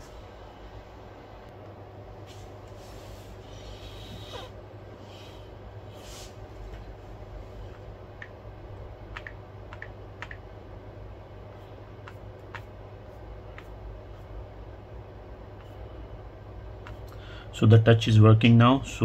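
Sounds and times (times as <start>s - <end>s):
low hum: 0.0s - 19.0s
fingertips tapping touchscreen: 9.1s - 10.4s.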